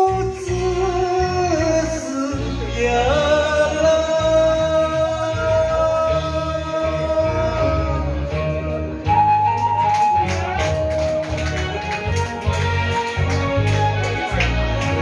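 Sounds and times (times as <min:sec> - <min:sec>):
man singing karaoke: 0:00.0 - 0:09.8
backing track with low beat: 0:12.0 - 0:15.0.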